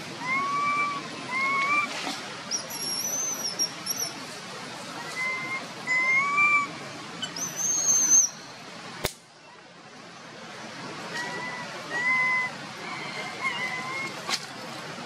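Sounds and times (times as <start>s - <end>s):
baby monkey crying calls: 0.2s - 1.9s, 5.0s - 8.3s, 11.1s - 14.2s
sharp click: 9.0s - 9.2s.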